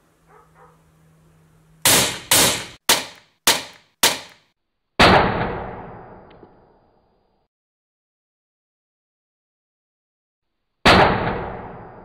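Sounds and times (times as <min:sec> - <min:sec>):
sharp pyrotechnic bangs: 0:01.8 - 0:06.3, 0:10.8 - 0:12.0.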